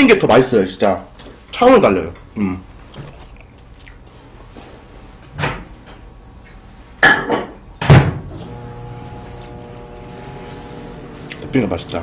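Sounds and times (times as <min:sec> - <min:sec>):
microwave oven humming: 0:08.1 - 0:12.0.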